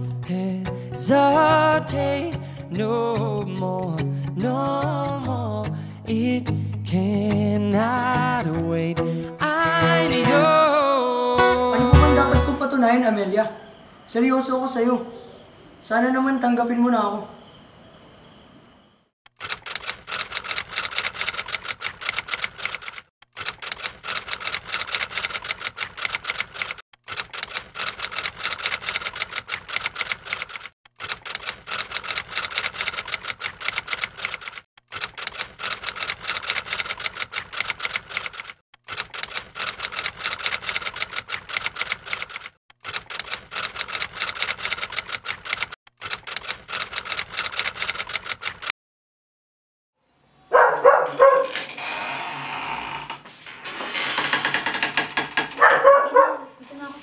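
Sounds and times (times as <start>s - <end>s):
typewriter keys clacking: 19.4s - 48.7s.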